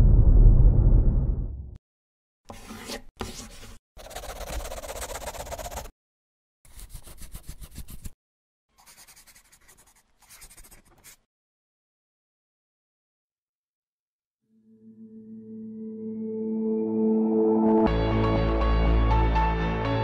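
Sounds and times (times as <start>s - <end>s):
pen scribbling on paper: 2.5s - 5.9s, 6.7s - 8.2s, 8.8s - 11.2s.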